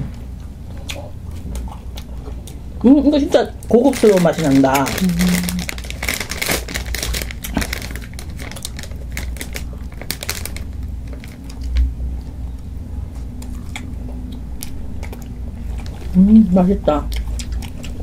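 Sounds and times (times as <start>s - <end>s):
eating noises: 0.3s - 18.0s
quick clicks and crinkling: 3.9s - 11.9s.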